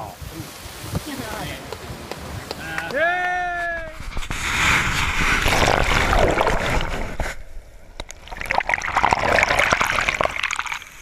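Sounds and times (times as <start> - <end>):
surf rushing: 0.0 - 10.4
water splashing and sloshing: 4.0 - 11.0.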